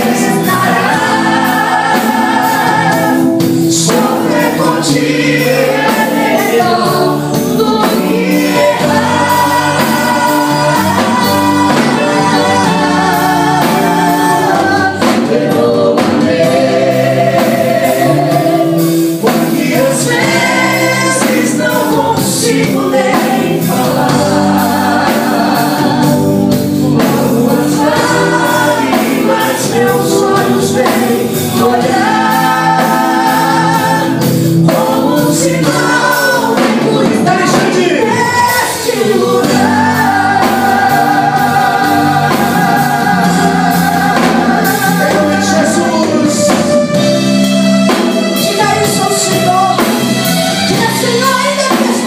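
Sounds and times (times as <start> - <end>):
woman singing gospel song: 0.0 - 46.7, 50.5 - 52.0
musical accompaniment: 0.0 - 52.0.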